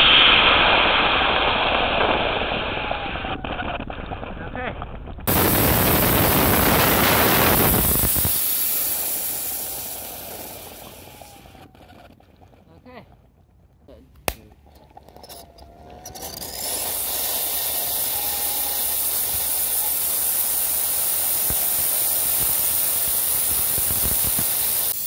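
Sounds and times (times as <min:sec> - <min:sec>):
rocket engine hissing: 0:00.0 - 0:03.6, 0:05.3 - 0:11.8, 0:15.2 - 0:25.0.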